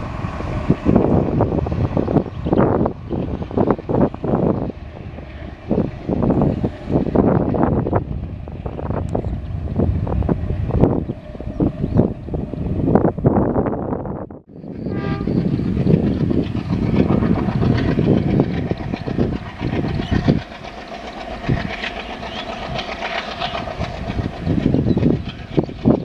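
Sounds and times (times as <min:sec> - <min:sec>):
diesel locomotive engine: 0:00.0 - 0:26.0
train horn: 0:14.7 - 0:15.5.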